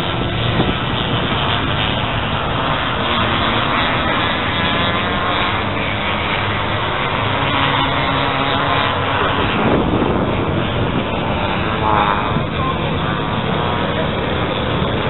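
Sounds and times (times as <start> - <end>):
motorcycle engines racing: 0.0 - 15.0
motorcycle passing close: 0.0 - 15.0.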